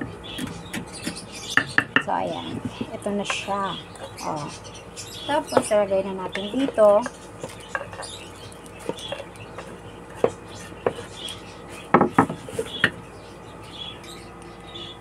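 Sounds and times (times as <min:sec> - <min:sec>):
utensil knocking on chopping board: 0:11.9 - 0:12.4.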